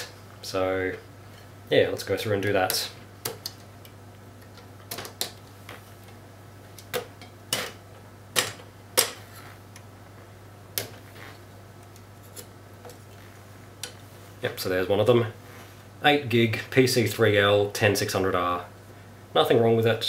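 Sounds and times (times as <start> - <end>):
steady low hum: 0.0 - 20.0.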